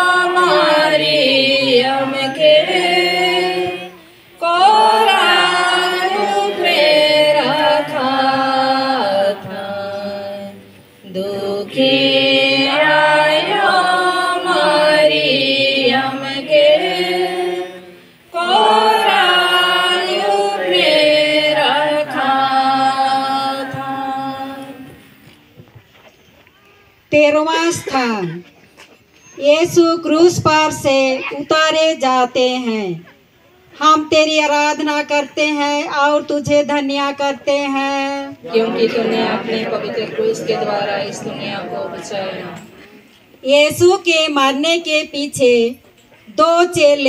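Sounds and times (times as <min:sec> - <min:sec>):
group singing a hymn: 0:00.0 - 0:25.4, 0:37.5 - 0:43.1.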